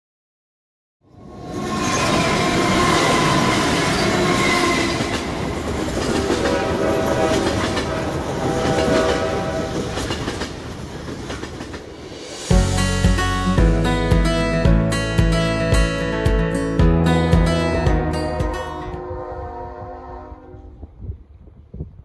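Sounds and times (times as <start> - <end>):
train horn: 1.5 - 10.0, 18.3 - 21.2
train wheels clattering over rails: 3.4 - 12.1
guitar music: 12.5 - 19.4.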